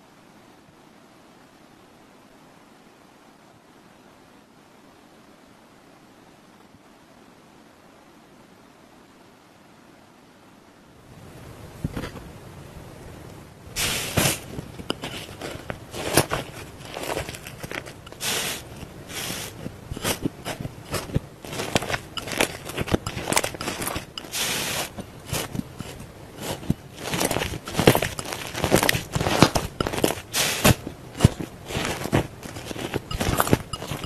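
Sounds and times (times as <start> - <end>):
slime crackling and squelching: 13.8 - 34.0.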